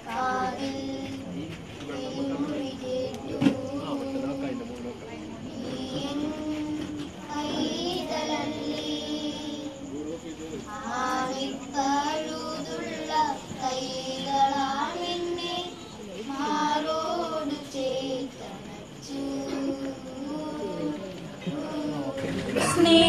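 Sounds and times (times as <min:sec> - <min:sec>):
high voices singing a hymn: 0:00.0 - 0:23.0.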